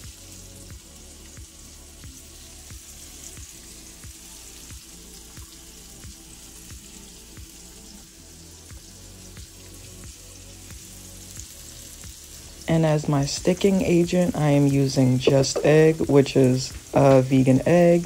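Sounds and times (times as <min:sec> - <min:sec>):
background music with beat: 0:00.0 - 0:18.0
vegetables sizzling in a frying pan: 0:00.0 - 0:18.0.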